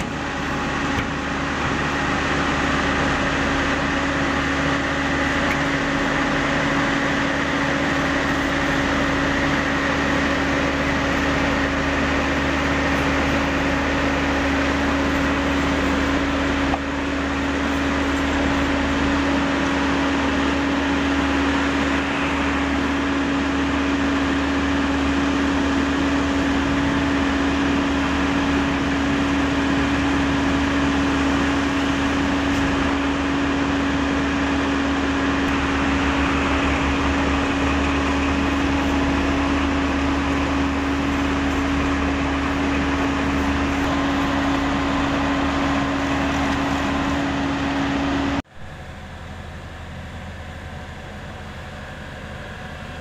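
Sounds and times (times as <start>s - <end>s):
asphalt paver machine drone: 0.0s - 53.0s.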